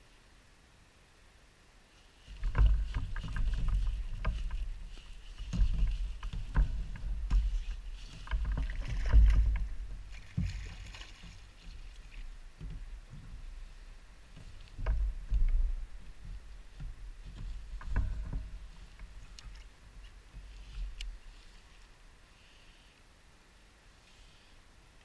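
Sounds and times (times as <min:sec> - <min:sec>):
thumps and knocks on boat hull: 0:02.4 - 0:11.8, 0:12.6 - 0:13.5, 0:14.3 - 0:19.2.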